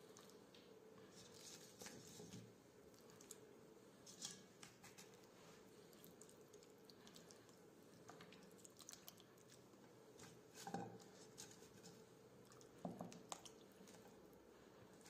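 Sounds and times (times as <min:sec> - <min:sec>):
soft handling noises: 0:00.0 - 0:06.3, 0:09.5 - 0:12.2.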